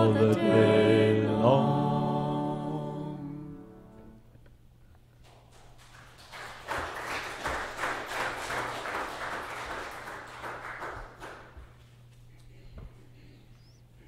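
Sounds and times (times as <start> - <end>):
congregation applauding: 5.2 - 11.8.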